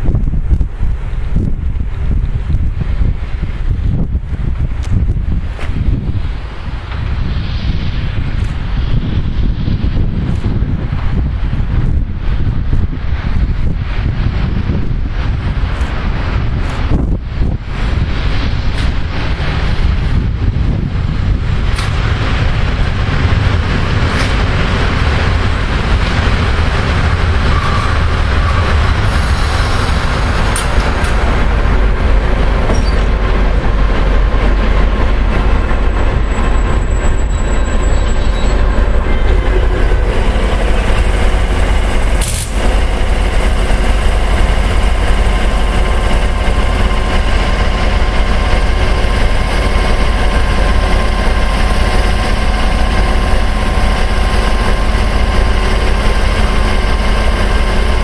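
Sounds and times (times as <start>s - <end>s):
diesel locomotive running hard: 0.0s - 58.0s
locomotive idling drone: 0.0s - 58.0s
rail and wagon noise: 0.0s - 58.0s.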